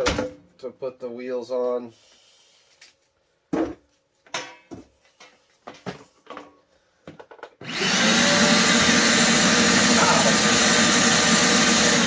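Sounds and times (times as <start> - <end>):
wet dry vacuum motor running: 7.6 - 12.0.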